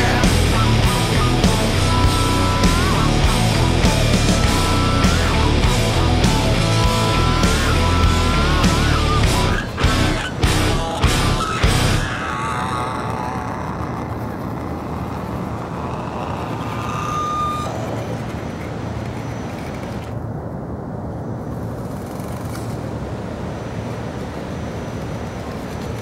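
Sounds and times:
small electric motor whining: 0:00.0 - 0:20.1
loud steady rushing: 0:00.0 - 0:20.2.

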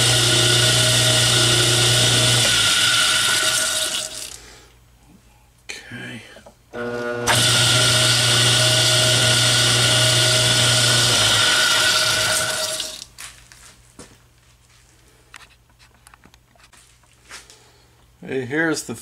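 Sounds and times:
lathe motor hum with whine: 0:00.0 - 0:04.0, 0:06.7 - 0:13.0.

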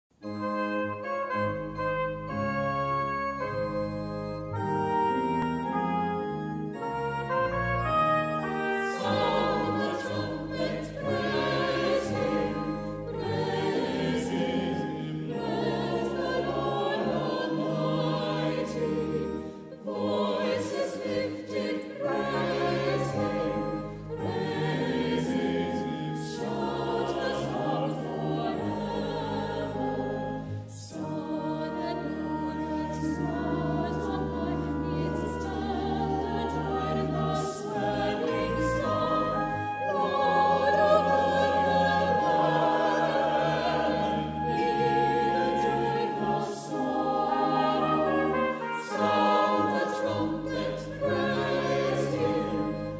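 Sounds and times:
trumpet playing: 0:00.2 - 0:13.6, 0:38.0 - 0:52.8
pipe organ: 0:00.2 - 0:52.9
choir singing: 0:03.3 - 0:52.9.

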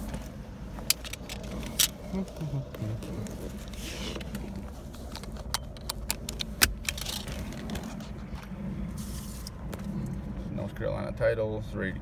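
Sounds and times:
car engine humming: 0:00.0 - 0:12.0
seat belt buckle clicking: 0:00.8 - 0:02.0, 0:04.1 - 0:07.8.

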